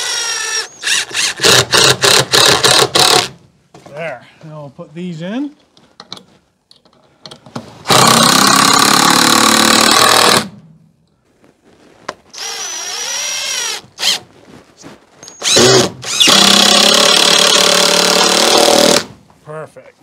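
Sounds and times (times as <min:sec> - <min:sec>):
power drill driving screws: 0:00.0 - 0:03.4, 0:07.8 - 0:10.5, 0:12.3 - 0:14.2, 0:15.2 - 0:19.1.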